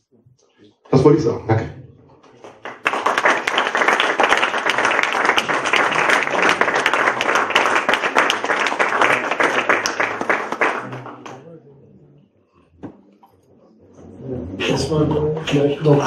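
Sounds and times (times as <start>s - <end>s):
audience applauding: 2.2s - 11.5s.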